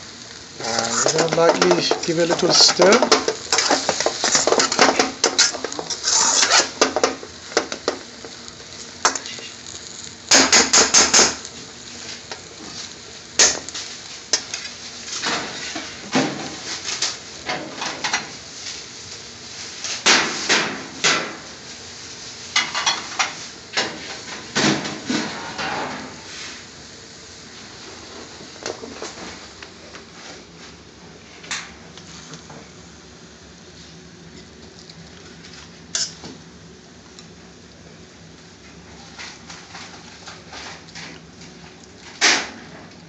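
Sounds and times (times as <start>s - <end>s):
metal spoon scraping a wok: 2.6s - 6.8s, 35.9s - 36.2s.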